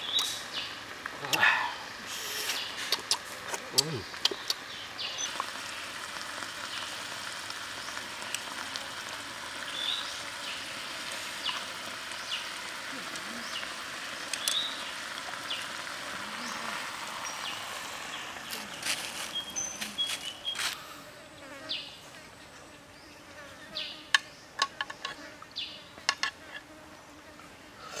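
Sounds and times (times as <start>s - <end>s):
food sizzling in a pan: 4.6s - 20.7s
fire pops and clicks: 14.2s - 14.6s.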